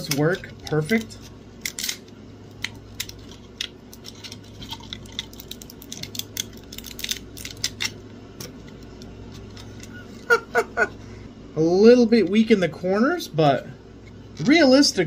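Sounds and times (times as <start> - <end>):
plastic snapping and crackling: 0.0 - 9.9
low steady hum: 0.0 - 15.0.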